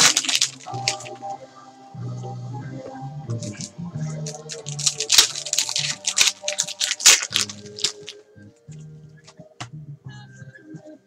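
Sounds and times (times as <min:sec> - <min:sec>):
foil wrappers crinkling and tearing: 0:00.0 - 0:01.2, 0:03.4 - 0:08.2
music playing: 0:00.0 - 0:11.0.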